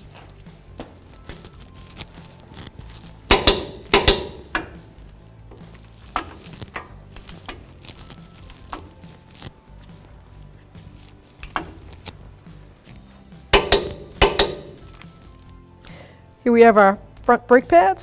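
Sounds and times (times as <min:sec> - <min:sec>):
torque wrench clicking: 0:03.3 - 0:04.8, 0:13.6 - 0:14.9.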